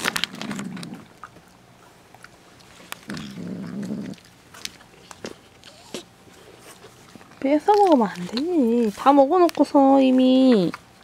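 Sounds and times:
pet growling: 0:00.0 - 0:01.5, 0:03.0 - 0:06.8.

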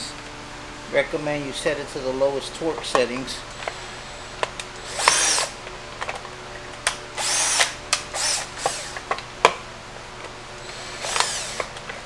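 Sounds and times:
drill driving screws: 0:03.6 - 0:05.6, 0:07.1 - 0:09.1, 0:10.6 - 0:11.9.

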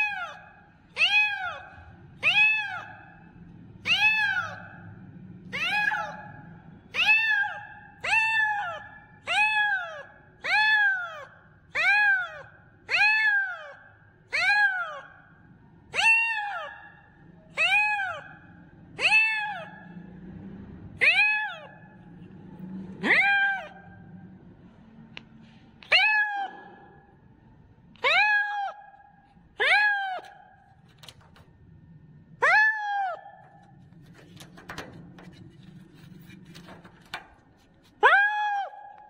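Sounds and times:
kitten meowing: 0:01.0 - 0:01.6, 0:02.2 - 0:03.0.

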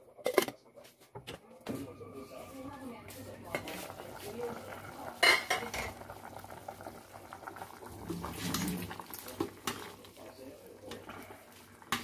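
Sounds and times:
sauce simmering and bubbling: 0:03.7 - 0:12.0.

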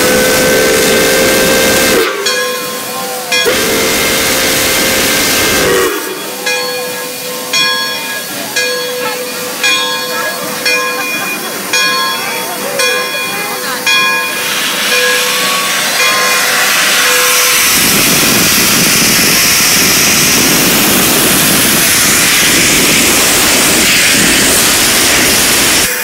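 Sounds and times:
steam locomotive venting steam: 0:00.0 - 0:26.0
bell ringing: 0:06.2 - 0:17.5.

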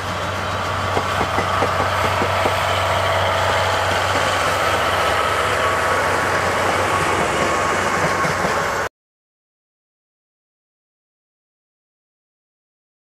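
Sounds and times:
diesel locomotive engine: 0:00.0 - 0:08.9.

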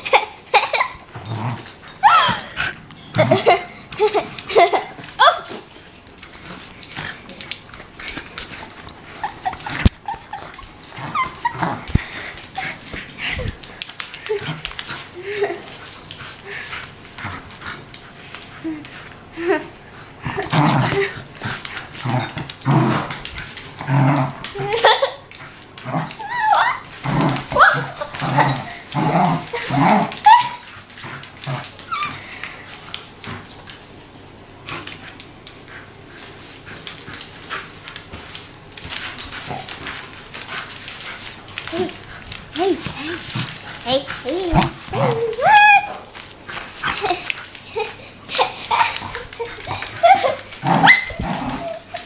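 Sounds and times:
dog whining and yipping: 0:01.2 - 0:02.6, 0:09.1 - 0:12.8, 0:26.0 - 0:30.8, 0:31.6 - 0:32.2, 0:44.5 - 0:46.2, 0:49.4 - 0:52.0
rustling and scuffling: 0:25.3 - 0:52.0.

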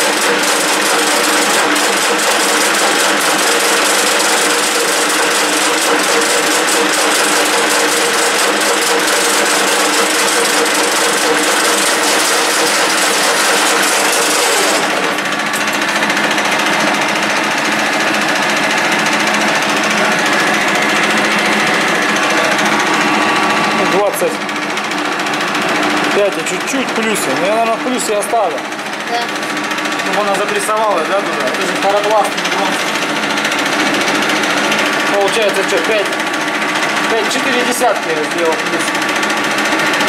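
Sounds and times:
lathe running: 0:00.0 - 0:40.0.

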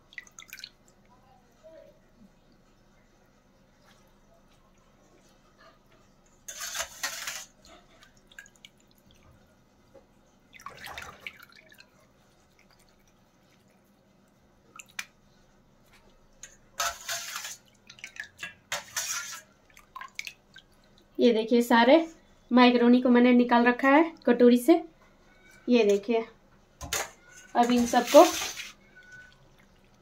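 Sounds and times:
water splashing and dripping: 0:00.0 - 0:01.1, 0:06.9 - 0:15.2, 0:15.9 - 0:21.2.

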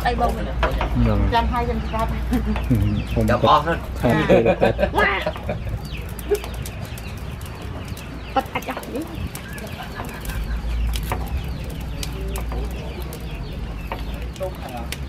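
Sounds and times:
chickens clucking: 0:00.5 - 0:15.0.

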